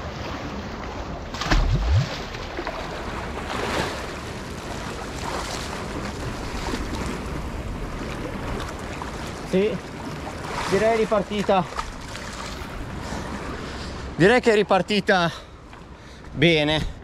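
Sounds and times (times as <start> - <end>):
sea water sloshing on rocks: 0.0 - 13.0
loud low thump: 1.4 - 2.1.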